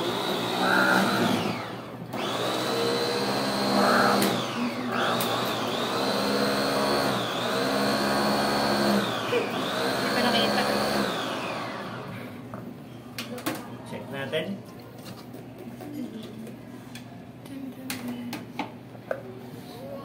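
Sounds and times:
food processor motor whining: 0.0 - 12.2.

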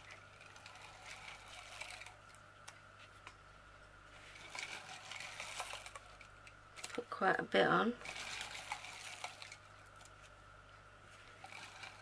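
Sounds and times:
soft rustling scrape of tape: 0.0 - 2.4, 4.1 - 7.0, 8.0 - 10.4, 11.0 - 12.0.

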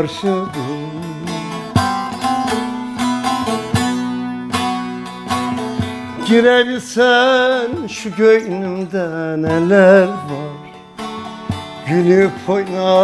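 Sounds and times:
man singing: 0.0 - 2.8, 6.2 - 10.8, 11.7 - 13.0
plucked lute with drone: 0.0 - 13.0.

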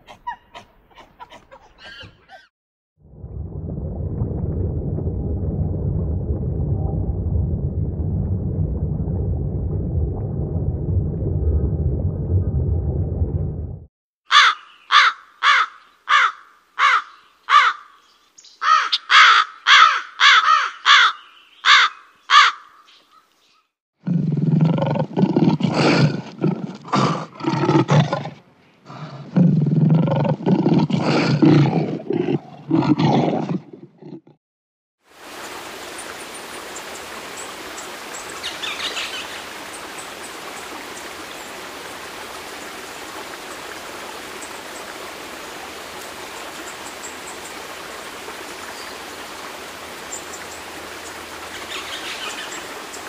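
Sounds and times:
underwater rushing: 3.0 - 13.9
rook cawing harshly: 14.3 - 18.0, 18.6 - 22.8
lion roaring: 24.0 - 34.4.

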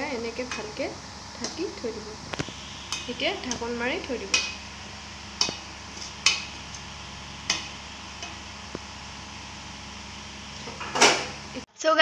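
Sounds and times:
steady low hum: 0.0 - 11.7
spoon stirring rice in pot: 2.4 - 10.9.

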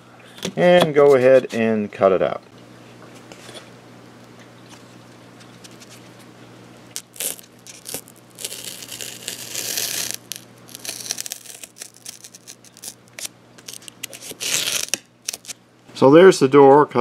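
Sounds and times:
knife slicing foam: 8.4 - 13.0.

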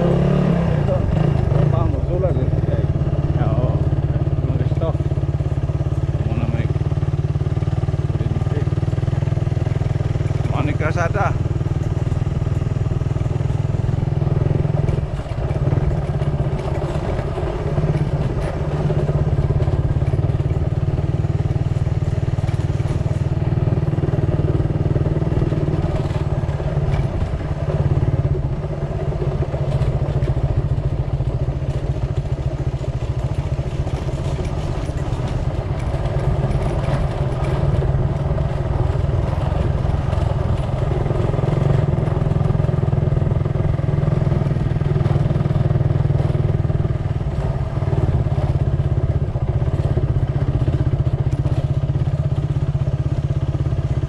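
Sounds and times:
engine humming steadily: 0.0 - 54.0.

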